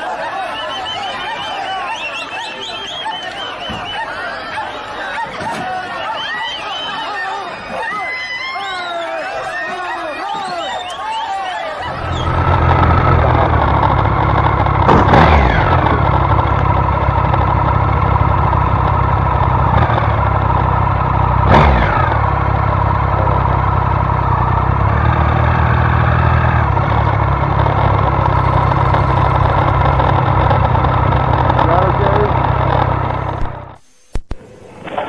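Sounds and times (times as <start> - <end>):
motorcycle engine idling: 11.8 - 33.8.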